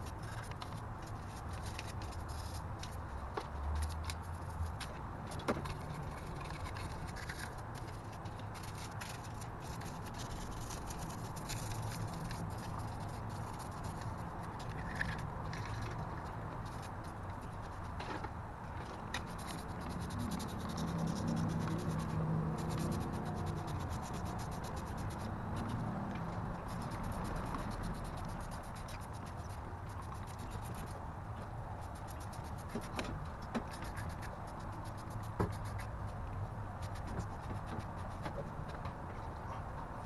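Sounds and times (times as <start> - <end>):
brush scrubbing metal: 19.2 - 25.8.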